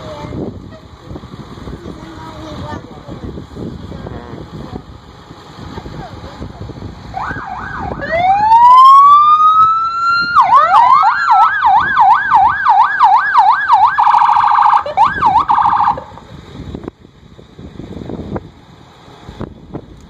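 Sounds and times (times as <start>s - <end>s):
electronic siren wailing and yelping: 7.2s - 16.2s.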